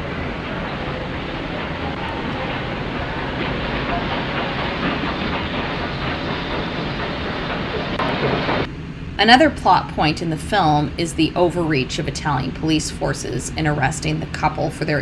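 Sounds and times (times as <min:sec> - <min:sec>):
muffled railway station train noise: 0:00.0 - 0:15.0.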